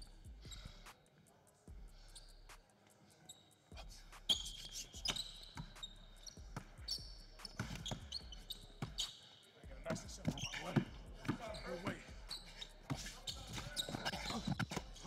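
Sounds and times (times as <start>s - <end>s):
sneakers squeaking on court: 4.3s - 15.0s
basketball bouncing on hardwood floor: 9.8s - 12.2s.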